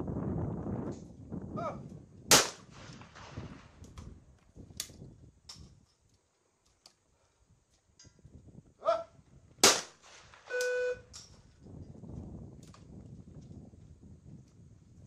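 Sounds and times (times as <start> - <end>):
person shouting: 1.6 - 1.8, 8.8 - 9.2
shotgun shot: 2.3 - 3.6, 9.6 - 10.6
electronic buzzer tone: 10.5 - 11.1.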